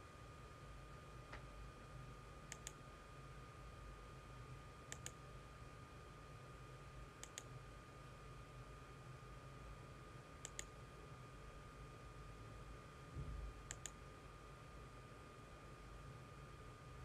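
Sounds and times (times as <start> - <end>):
faint steady hum: 0.0 - 17.0
computer mouse button clicking: 2.5 - 2.8, 4.9 - 5.2, 7.2 - 7.5, 10.4 - 10.7, 13.7 - 14.0.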